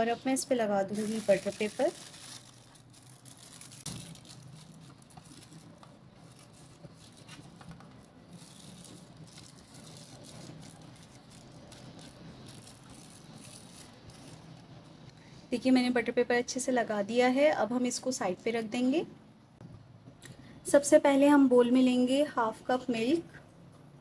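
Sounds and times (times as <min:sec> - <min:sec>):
butter paper crinkling: 0:00.6 - 0:15.0
soft crackles: 0:00.8 - 0:15.2.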